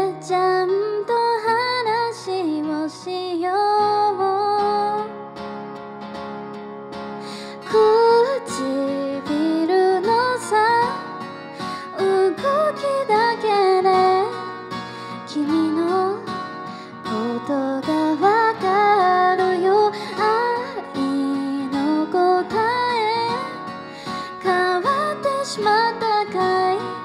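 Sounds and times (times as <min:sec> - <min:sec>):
woman singing ballad: 0:00.0 - 0:05.2, 0:07.2 - 0:27.0
guitar accompaniment: 0:00.0 - 0:27.0.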